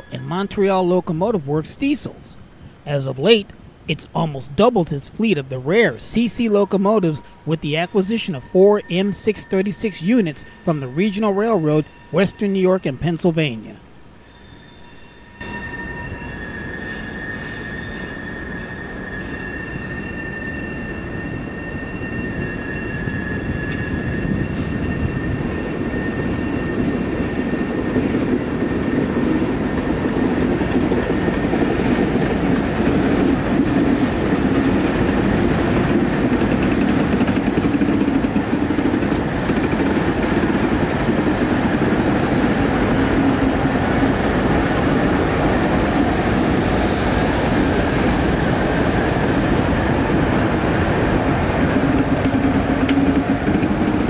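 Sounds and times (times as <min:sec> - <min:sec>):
train wheel squeal: 0:00.0 - 0:00.2, 0:06.4 - 0:13.2, 0:14.1 - 0:40.9, 0:41.6 - 0:53.7
diesel locomotive engines droning: 0:00.0 - 0:54.0.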